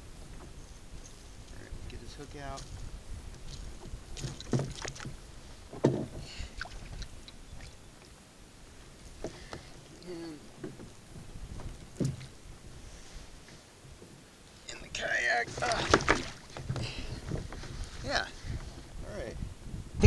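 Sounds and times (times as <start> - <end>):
knocks and clatters on kayak: 2.6 - 6.3, 9.2 - 9.8, 10.6 - 12.4, 15.5 - 17.9.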